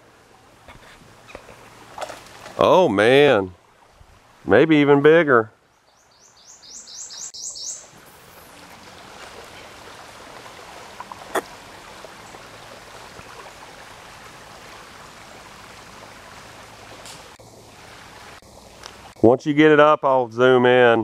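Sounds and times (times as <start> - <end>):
creek water trickling: 0.0 - 21.0
bird chirping: 5.8 - 7.9.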